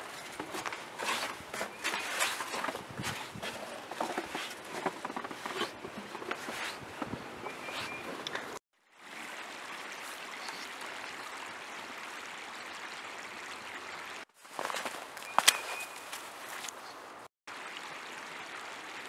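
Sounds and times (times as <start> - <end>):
creek rushing: 0.0 - 19.0
boots crunching in snow: 14.4 - 16.8.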